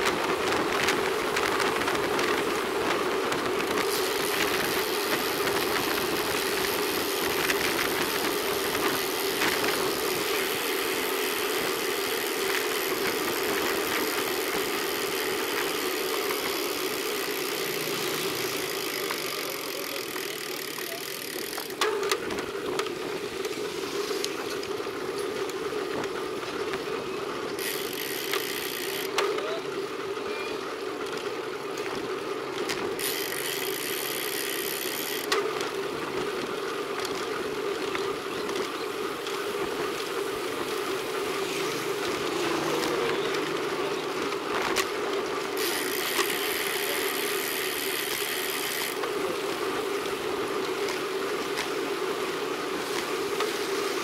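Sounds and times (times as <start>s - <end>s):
tyre and wind rumble: 0.0s - 29.1s.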